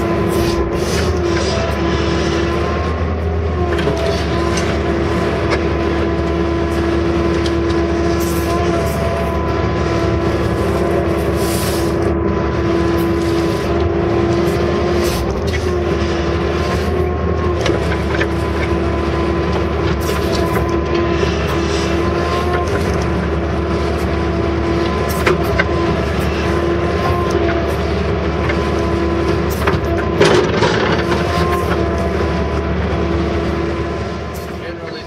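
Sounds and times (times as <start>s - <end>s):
diesel engine running: 0.0s - 35.0s
steady whine: 0.0s - 35.0s.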